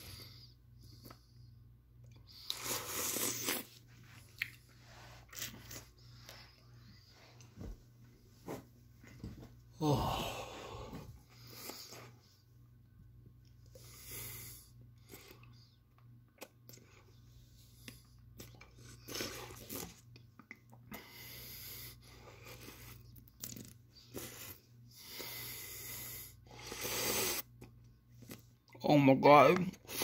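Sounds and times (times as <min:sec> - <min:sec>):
man breathing hard: 0:09.8 - 0:11.7.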